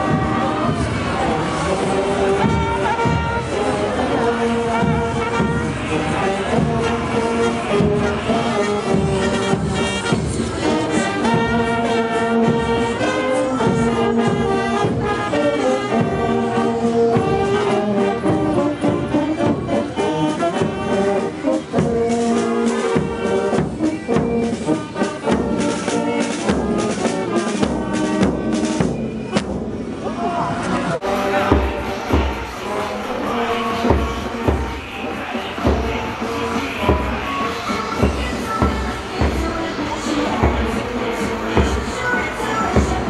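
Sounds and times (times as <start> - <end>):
marching brass band playing: 0.0 - 30.1, 30.9 - 43.0
steady drum beat: 31.0 - 43.0.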